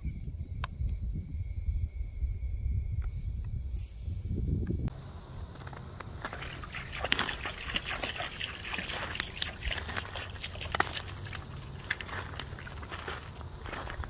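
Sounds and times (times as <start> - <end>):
water lapping over stones: 5.6 - 14.0.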